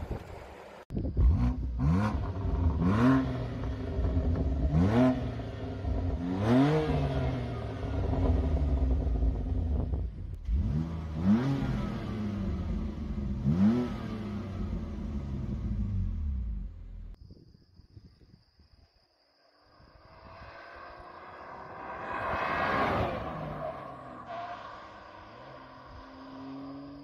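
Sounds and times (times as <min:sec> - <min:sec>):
car exhaust revving: 0:01.1 - 0:17.2.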